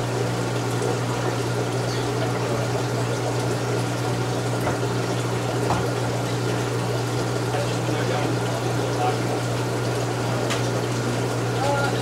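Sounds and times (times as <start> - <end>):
filter pump humming: 0.0 - 12.0
moving water: 0.0 - 12.0.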